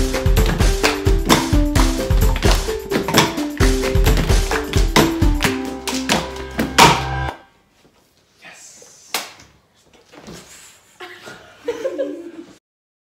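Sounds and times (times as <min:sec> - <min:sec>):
music: 0:00.0 - 0:07.5.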